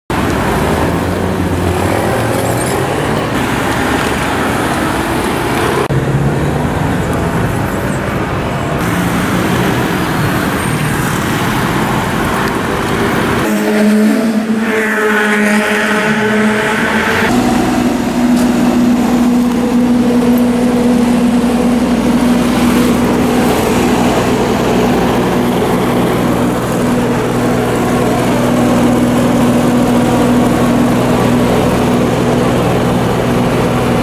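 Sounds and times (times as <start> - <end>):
scooters and cars passing: 0.1 - 34.0
steady engine note: 8.8 - 34.0.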